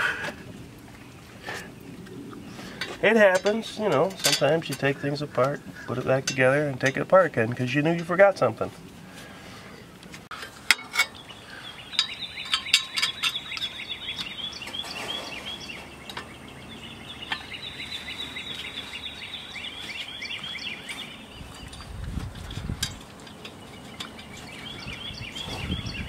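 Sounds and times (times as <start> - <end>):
bird singing quick chirps: 11.1 - 22.0, 23.6 - 26.0.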